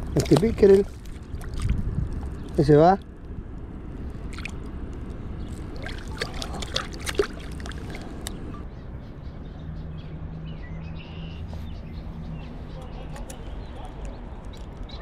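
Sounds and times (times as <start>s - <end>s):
water splashing and dripping: 0.0s - 8.6s
low rumble of moving water: 0.0s - 8.8s.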